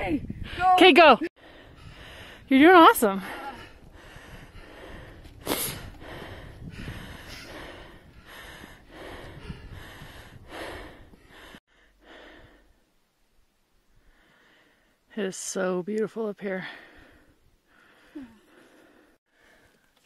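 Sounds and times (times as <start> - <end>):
wind buffeting microphone: 0.0 - 11.6
person breathing hard: 1.4 - 2.5, 3.1 - 12.8, 14.0 - 15.0, 16.7 - 19.9.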